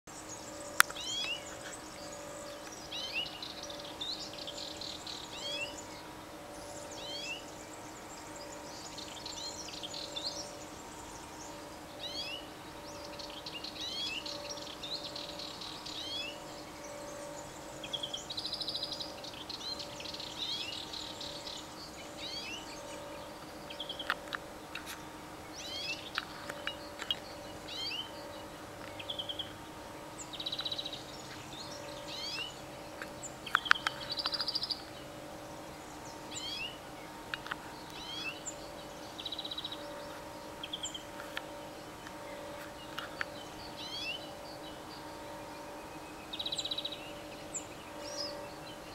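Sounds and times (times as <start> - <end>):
songbirds singing: 0.0 - 48.9
faint steady hum: 0.1 - 48.9.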